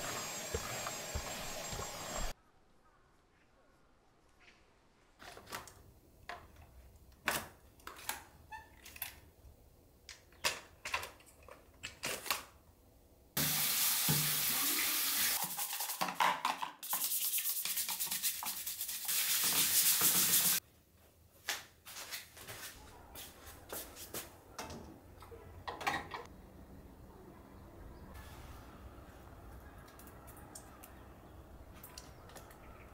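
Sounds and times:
tap running water: 0:13.4 - 0:16.2, 0:16.9 - 0:20.6.

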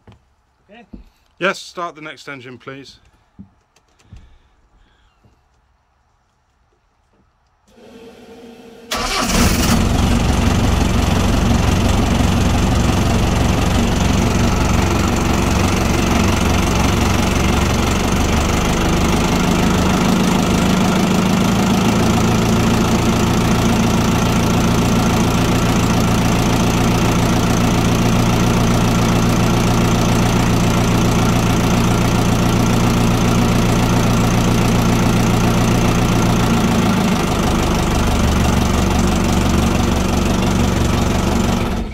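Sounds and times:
boat engine starting and idling: 0:07.7 - 0:41.9.

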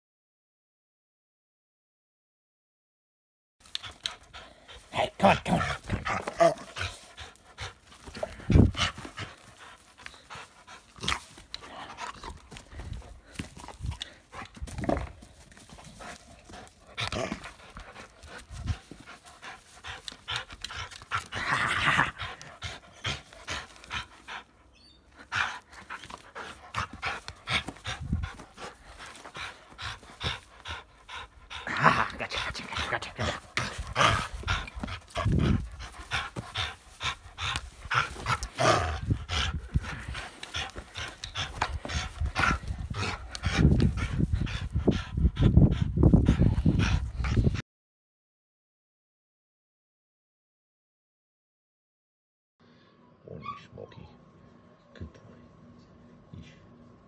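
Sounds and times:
dog breathing and mouthing: 0:03.6 - 0:47.6.

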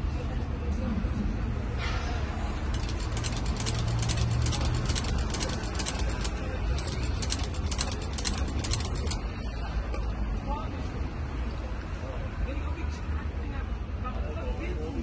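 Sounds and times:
sewing machine stitching: 0:02.7 - 0:09.2.

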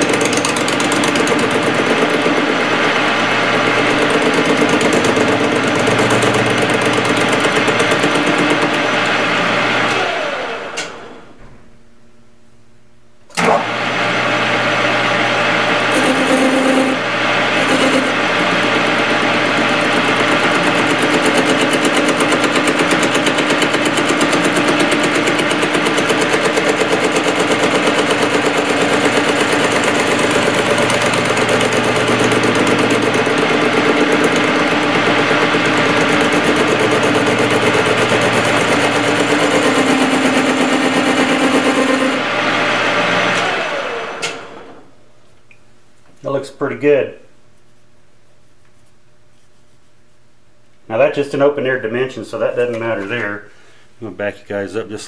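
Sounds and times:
metal lathe running: 0:00.0 - 0:10.9, 0:13.4 - 0:44.8.

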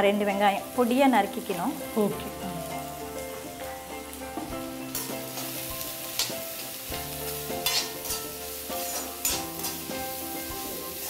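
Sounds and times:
onions sizzling in hot oil: 0:00.0 - 0:11.0
metal spatula scraping pan: 0:07.6 - 0:10.7.

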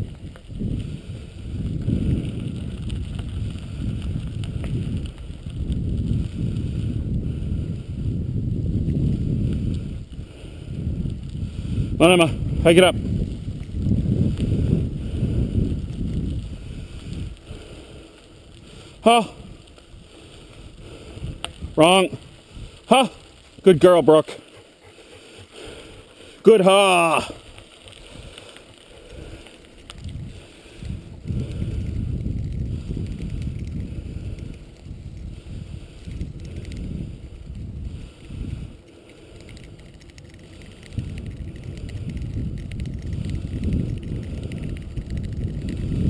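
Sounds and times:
wheels rumbling over rough road: 0:00.0 - 0:46.0
wind buffeting microphone: 0:00.0 - 0:46.0.

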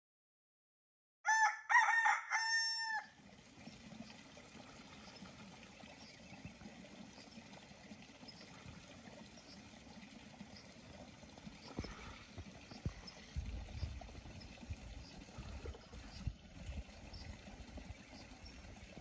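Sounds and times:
rooster crowing: 0:01.3 - 0:03.2.

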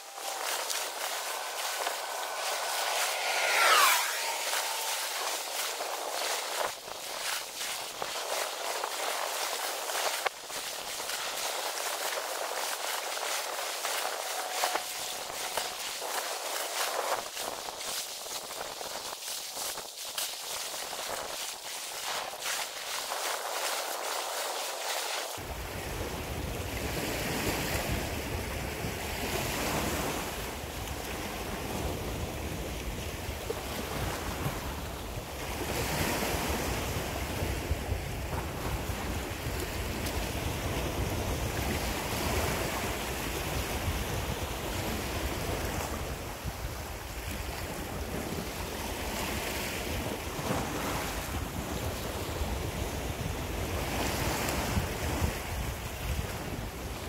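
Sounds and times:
sea waves breaking over rocks: 0:00.0 - 0:28.0
wind rumbling on microphone: 0:00.0 - 0:57.0.

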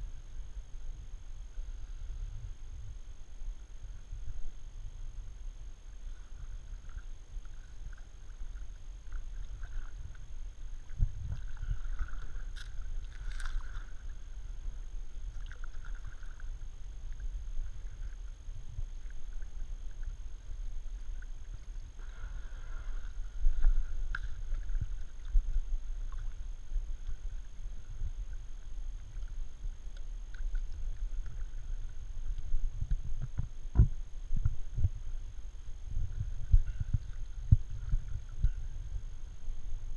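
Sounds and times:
steady low rumble: 0:00.0 - 0:39.9
kayak paddle strokes: 0:06.0 - 0:34.9, 0:36.1 - 0:39.0.

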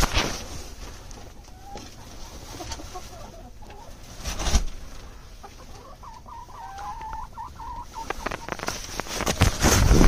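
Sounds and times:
hens clucking: 0:01.0 - 0:09.4
bump or rustle: 0:04.2 - 0:04.9, 0:08.1 - 0:10.0.

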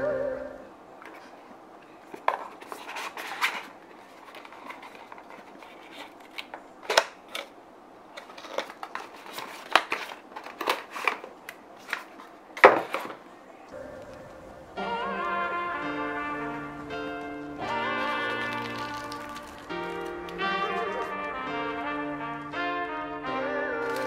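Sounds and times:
cardboard box rustling and clicking: 0:02.1 - 0:07.5, 0:08.2 - 0:13.2.

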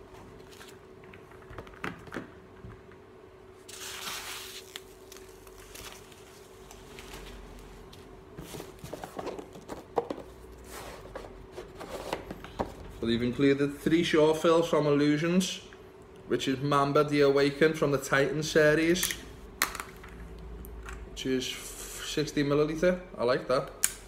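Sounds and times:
faint steady hum: 0:00.0 - 0:24.0
packaging rustling: 0:03.7 - 0:07.7.

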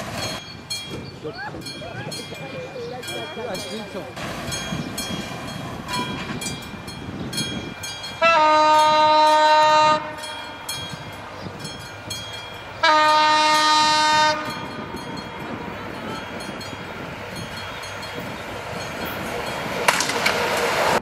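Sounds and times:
train horn blasts: 0:08.2 - 0:10.8, 0:12.8 - 0:14.9.

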